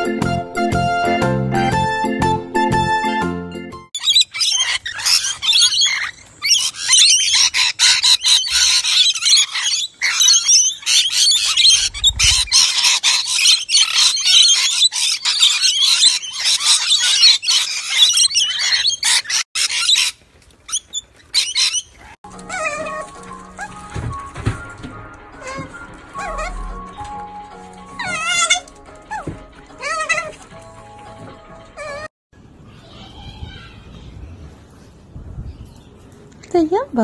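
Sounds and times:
flock of parrots chattering: 0:04.0 - 0:23.0.

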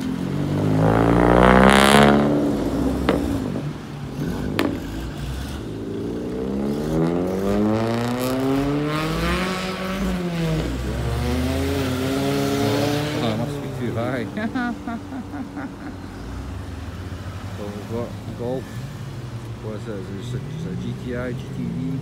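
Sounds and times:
vehicle engine revving: 0:00.0 - 0:19.6.

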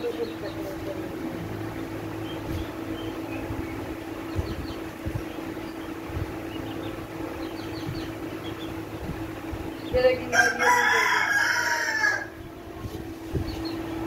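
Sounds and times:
steady low hum: 0:00.0 - 0:14.0
rooster crowing: 0:10.3 - 0:12.5.

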